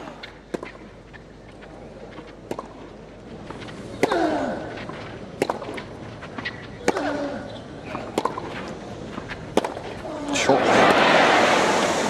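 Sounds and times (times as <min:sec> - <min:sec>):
tennis ball bouncing: 0:00.2 - 0:01.2, 0:02.2 - 0:10.0
tennis ball struck by rackets: 0:02.4 - 0:02.8, 0:05.4 - 0:07.2, 0:07.9 - 0:08.6, 0:09.5 - 0:10.0.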